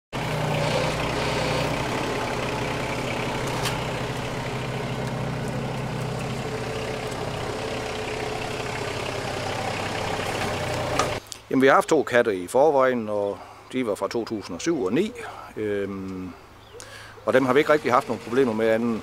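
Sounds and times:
excavator diesel engine running: 0.1 - 11.2, 17.3 - 19.0.

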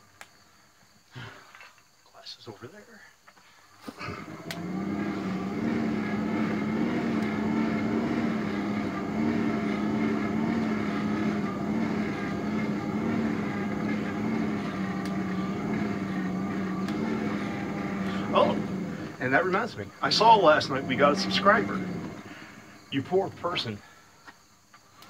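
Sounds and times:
motor humming: 4.0 - 23.7.

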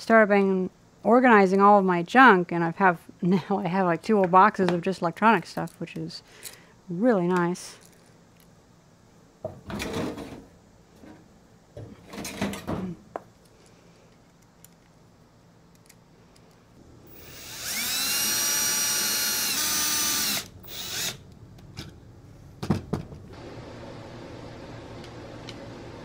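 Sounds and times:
cordless drill whining: 17.1 - 21.2.

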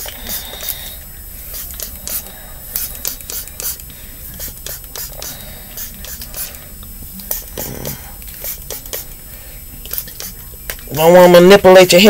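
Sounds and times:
spray bottle spraying: 0.0 - 0.9, 1.5 - 6.6, 7.3 - 7.7, 8.3 - 9.2, 9.9 - 10.4.

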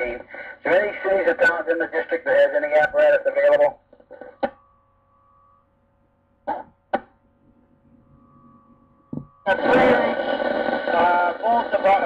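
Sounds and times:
radio static bursts: 0.0 - 3.7, 9.5 - 12.0
faint radio hum: 0.0 - 12.0.

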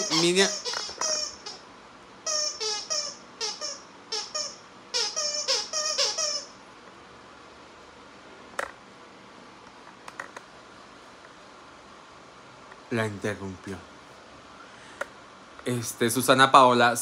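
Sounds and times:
squeaky dog toy squeaking: 0.0 - 6.6.

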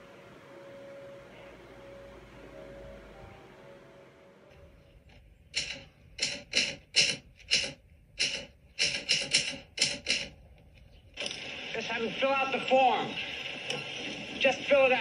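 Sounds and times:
typewriter keys clacking: 5.5 - 10.4.

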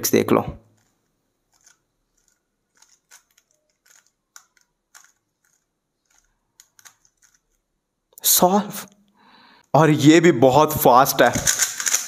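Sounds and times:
puzzle cube turning clicks: 0.6 - 7.7, 11.3 - 12.0.

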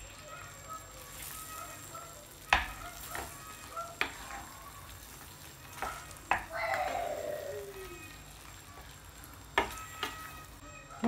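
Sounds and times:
spatula stirring and scraping in pan: 0.0 - 10.7
sauce sizzling: 0.0 - 11.0
spatula knocking against pan: 2.5 - 3.4.

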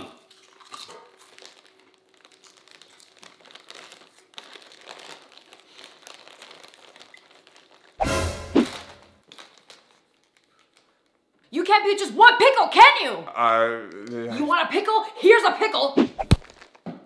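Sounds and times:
plastic chip bag crinkling: 0.2 - 11.4, 16.2 - 16.9.

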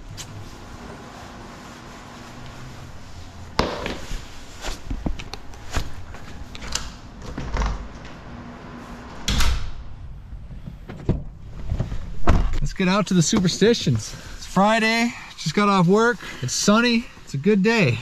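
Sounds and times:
footsteps on hard floor: 3.6 - 6.4
knocks and scuffs: 3.6 - 6.5.

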